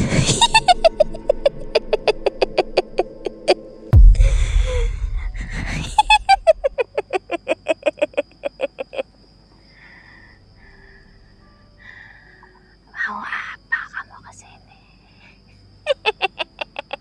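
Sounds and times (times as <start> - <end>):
woman cackling laugh: 0.0 - 3.6, 5.5 - 9.0, 15.9 - 17.0
woman breathing roughly: 4.0 - 6.3.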